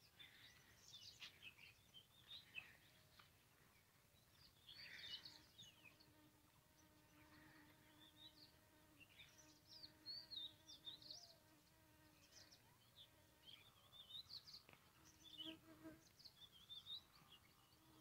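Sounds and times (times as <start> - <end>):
small birds chirping: 0.0 - 18.0
faint steady buzz: 3.5 - 14.1.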